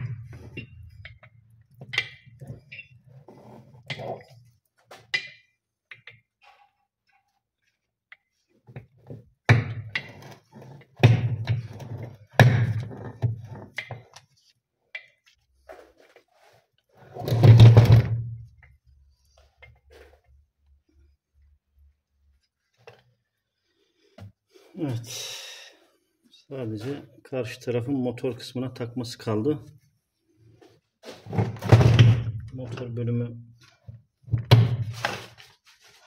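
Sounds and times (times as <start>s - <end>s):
metal thunks and clatter: 31.2s - 32.5s.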